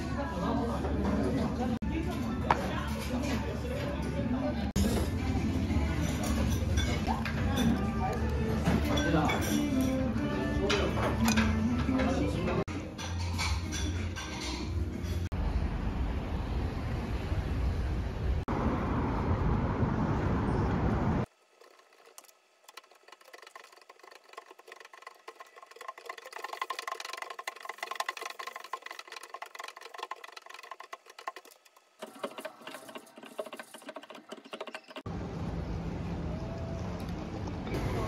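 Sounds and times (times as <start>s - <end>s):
street noise rumble: 15.3s - 21.3s, 35.1s - 38.0s.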